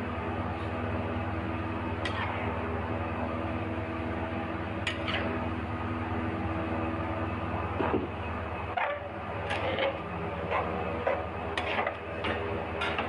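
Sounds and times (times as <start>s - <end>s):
background hum: 0.0s - 13.0s
metal spatula scraping wok: 11.1s - 12.0s.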